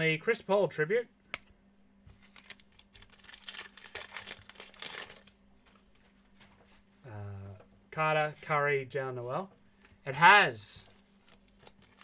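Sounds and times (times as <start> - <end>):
plastic wrapper crinkling and tearing: 2.2 - 5.4, 11.2 - 12.0.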